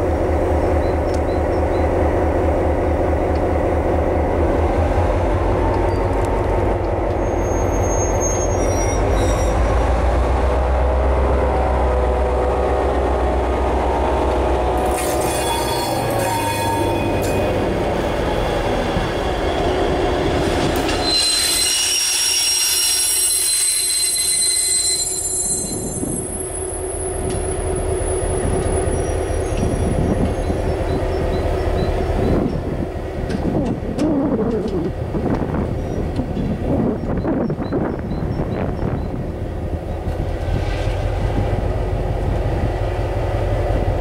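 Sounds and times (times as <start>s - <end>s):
diesel locomotive engine rumbling: 0.0s - 44.0s
railway wheel squeal: 0.6s - 2.1s, 5.6s - 6.2s, 7.0s - 10.0s, 14.8s - 32.8s, 35.7s - 41.5s.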